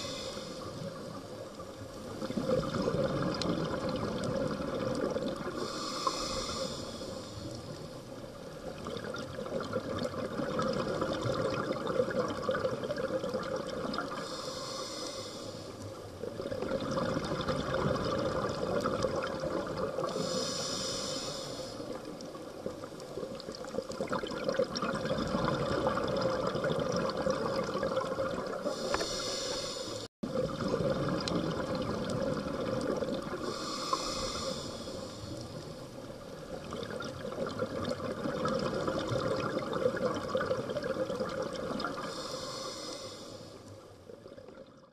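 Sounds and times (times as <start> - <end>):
diver inhaling through regulator: 0.0 - 1.4, 5.4 - 7.8, 14.1 - 15.8, 20.0 - 22.1, 28.6 - 30.1, 33.3 - 35.9, 41.8 - 43.7
bubbling exhalation: 24.0 - 28.6.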